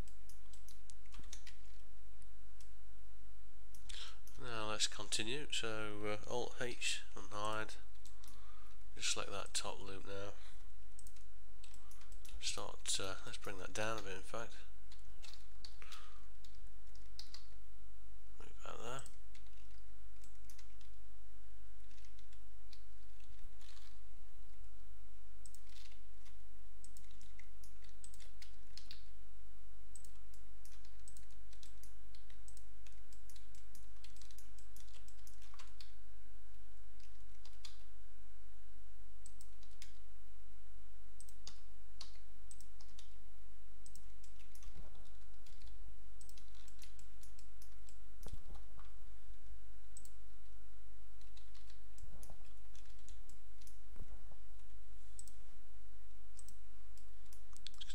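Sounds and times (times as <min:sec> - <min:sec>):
computer mouse clicks: 0:00.0 - 0:01.8, 0:11.0 - 0:12.4, 0:14.9 - 0:17.6, 0:21.8 - 0:24.0, 0:25.4 - 0:29.1, 0:29.9 - 0:36.0, 0:39.2 - 0:40.0, 0:41.2 - 0:43.2, 0:43.8 - 0:48.9, 0:50.0 - 0:50.2, 0:51.2 - 0:55.4, 0:56.4 - 0:57.9
low electrical hum: 0:00.0 - 0:57.9
scroll-wheel ticks: 0:14.9 - 0:17.5, 0:30.0 - 0:35.9.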